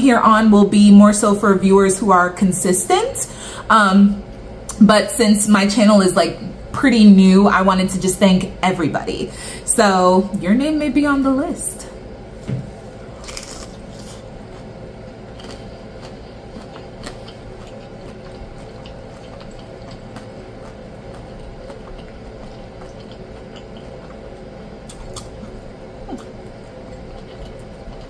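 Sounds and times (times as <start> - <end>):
faint steady hum: 0.0 - 28.0
wet chewing and squishing: 13.2 - 28.0.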